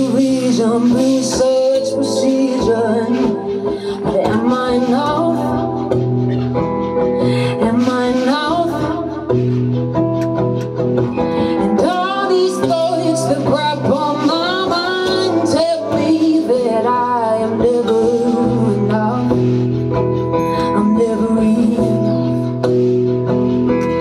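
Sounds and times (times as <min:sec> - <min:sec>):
woman singing: 0:00.0 - 0:10.0, 0:11.2 - 0:22.7
strummed acoustic guitar: 0:00.0 - 0:24.0.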